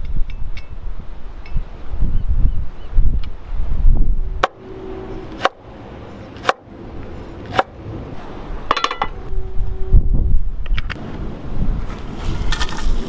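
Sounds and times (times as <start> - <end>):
cleaver chopping on wooden board: 5.4 - 5.6, 6.4 - 6.6.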